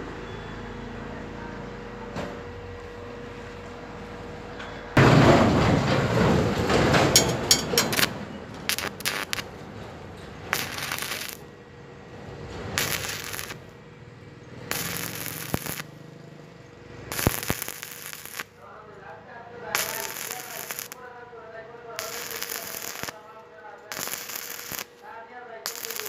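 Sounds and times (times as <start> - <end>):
welding arc crackling: 7.1 - 9.6, 10.3 - 11.5, 12.7 - 13.8, 14.6 - 16.0, 16.9 - 18.6, 19.6 - 21.1, 21.8 - 26.0.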